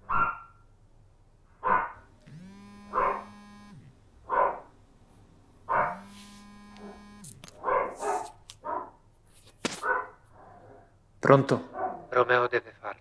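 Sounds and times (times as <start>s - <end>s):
dog barking: 0.0s - 0.7s, 1.6s - 2.1s, 2.8s - 3.4s, 4.2s - 4.8s, 5.7s - 6.1s, 6.8s - 9.0s, 9.8s - 10.9s, 11.6s - 12.2s
mobile phone ringing buzz: 2.1s - 4.0s, 5.7s - 7.5s.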